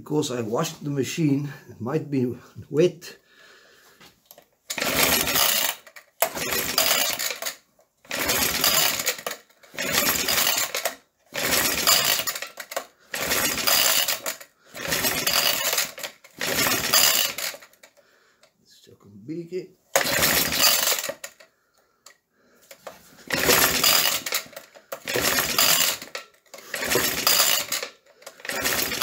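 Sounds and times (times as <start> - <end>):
small engine cranking without firing: 4.3 - 18.2, 19.9 - 29.0.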